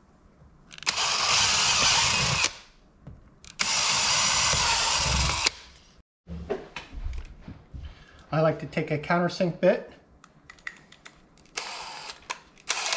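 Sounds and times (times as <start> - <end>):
power drill boring through plastic: 0.8 - 2.6, 3.6 - 5.6, 11.6 - 12.9.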